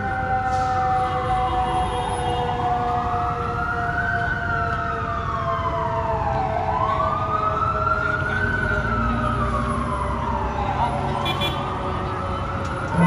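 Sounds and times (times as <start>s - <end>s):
fire engine siren wailing: 0.0s - 13.0s
low-frequency siren: 0.0s - 13.0s
steady siren tone: 0.0s - 13.0s.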